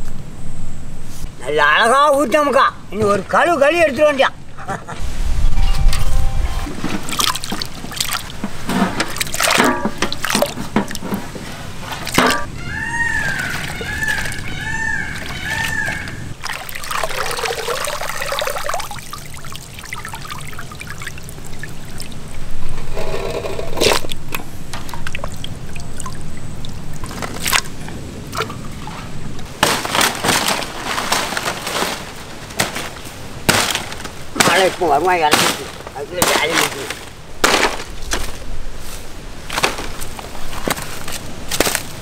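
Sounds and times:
water pouring and splashing: 0:06.8 - 0:12.5, 0:13.1 - 0:23.0, 0:23.7 - 0:32.0.

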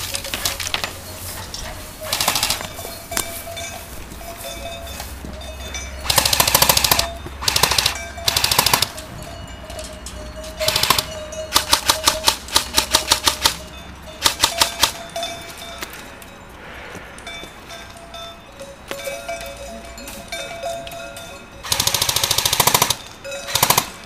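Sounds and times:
airsoft rifle shots: 0:02.1 - 0:02.7, 0:06.0 - 0:09.0, 0:10.6 - 0:13.6, 0:14.2 - 0:15.0, 0:21.7 - 0:24.0.

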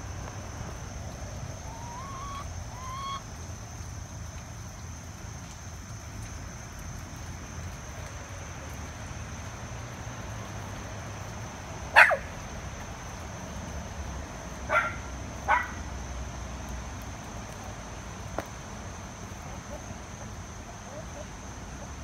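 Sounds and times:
dog barking: 0:12.0 - 0:12.3, 0:14.7 - 0:15.8.

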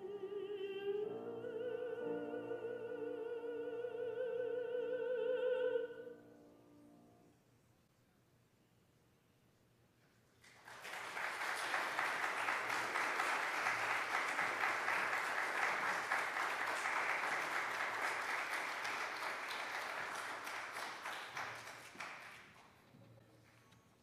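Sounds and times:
congregation applauding: 0:10.4 - 0:22.9.

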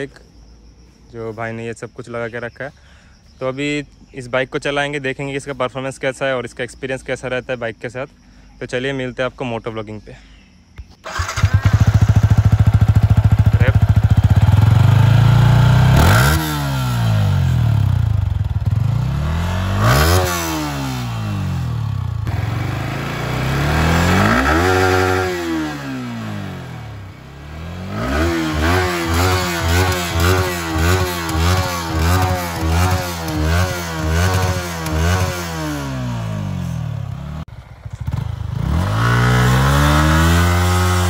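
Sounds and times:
motorcycle engine idling and revving: 0:10.8 - 0:41.0.

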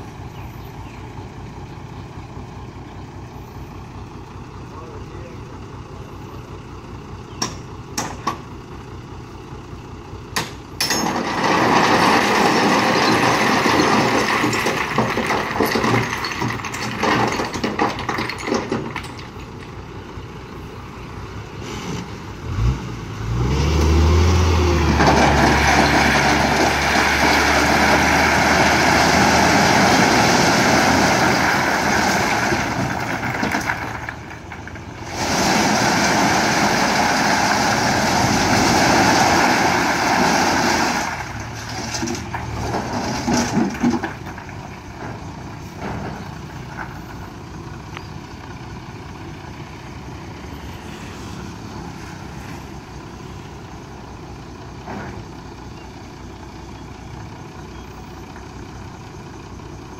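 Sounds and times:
stones clattering out of truck: 0:10.4 - 0:19.8, 0:24.9 - 0:47.1
truck engine revving: 0:21.5 - 0:44.4.

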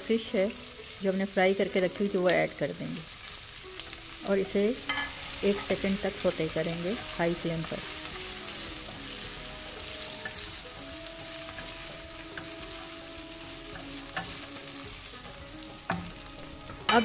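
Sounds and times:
food sizzling in hot oil: 0:00.0 - 0:17.0
spatula stirring in wok: 0:04.8 - 0:16.8.

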